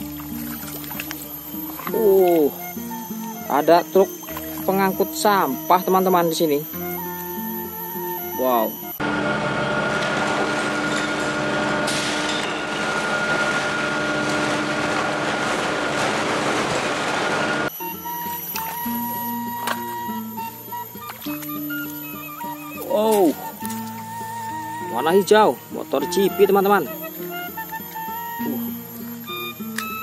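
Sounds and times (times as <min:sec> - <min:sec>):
simple electronic tune: 0:00.0 - 0:09.0, 0:17.7 - 0:30.0
high hydraulic whine: 0:00.0 - 0:30.0
garbage truck engine running: 0:09.0 - 0:20.4.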